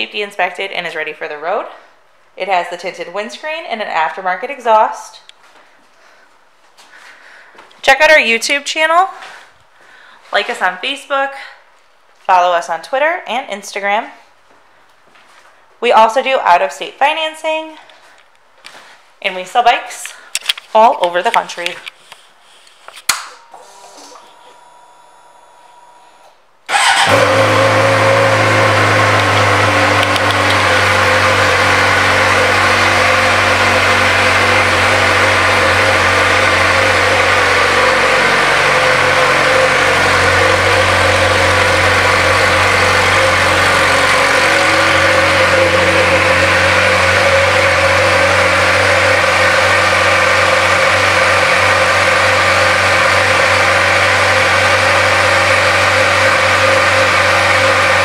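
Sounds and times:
motorcycle engine idling: 26.7 - 50.1.

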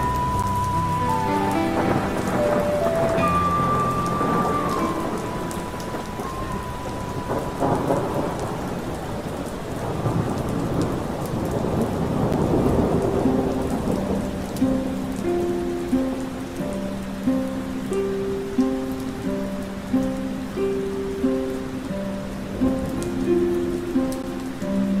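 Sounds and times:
low rolling thunder: 0.0 - 17.1
heavy rain: 0.0 - 25.0
soft sustained musical notes: 0.0 - 25.0.

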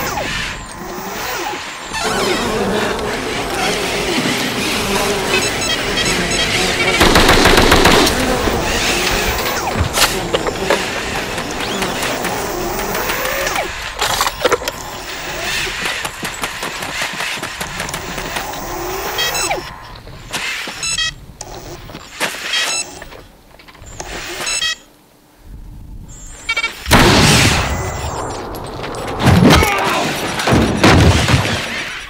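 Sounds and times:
servo motors whining: 0.0 - 24.9
loud sudden burst: 6.0 - 10.2, 26.9 - 31.6.

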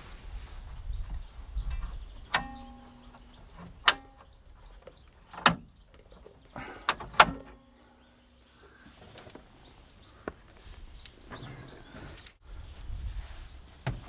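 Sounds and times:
birds chirping faintly: 0.0 - 12.5
tailgate clicks and clunks: 1.6 - 7.8.

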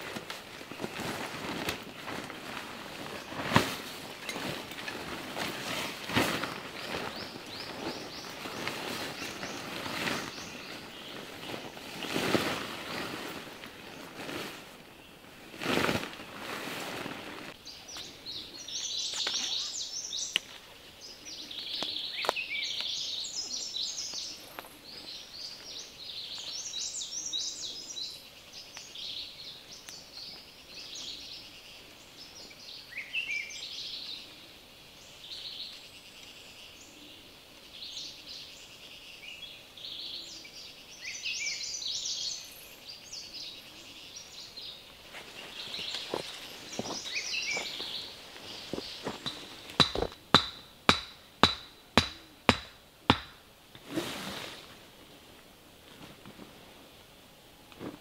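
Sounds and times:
tarp rustling: 0.0 - 17.6, 45.0 - 50.1, 53.8 - 55.1
birds chirping and trilling: 0.5 - 14.1, 17.6 - 53.4.

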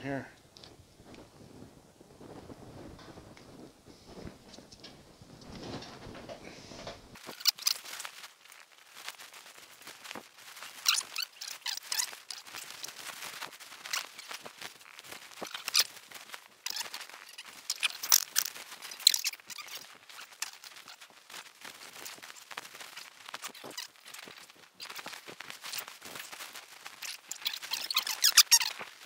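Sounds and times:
twine squeaking against pig skin: 10.8 - 12.6, 16.6 - 21.0, 27.0 - 28.8.

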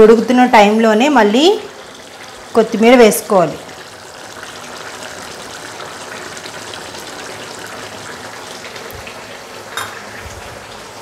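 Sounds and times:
curry bubbling in frying pan: 0.3 - 11.0.

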